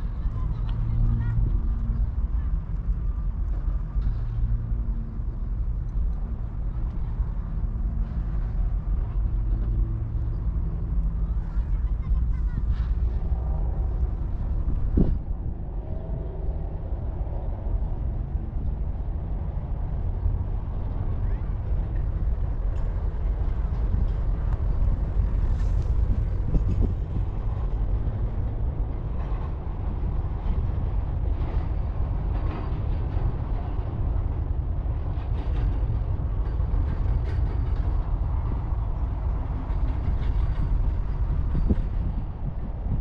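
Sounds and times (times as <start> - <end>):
wind buffeting microphone: 0.0 - 43.0.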